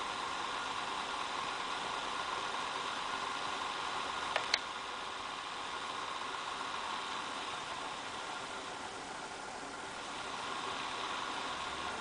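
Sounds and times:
laptop cooling fan whirring: 0.0s - 12.0s
quick clicks: 4.3s - 4.7s.

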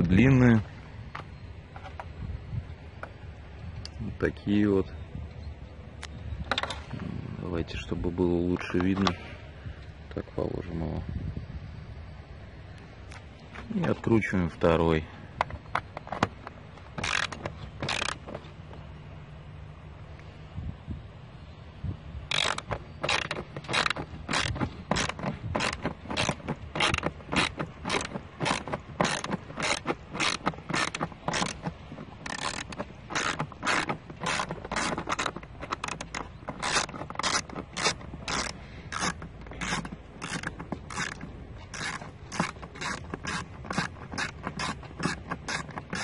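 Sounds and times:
ratchet handle clicking: 15.4s - 18.4s, 22.3s - 46.0s.

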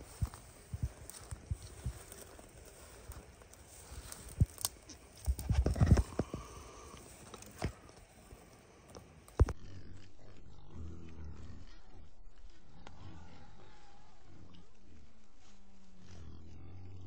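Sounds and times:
footsteps through dry grass: 0.0s - 9.6s, 14.8s - 16.4s
steady low hum: 0.0s - 17.0s.

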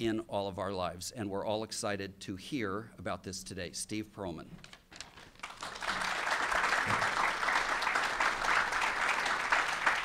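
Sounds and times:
audience applauding: 5.4s - 10.0s.

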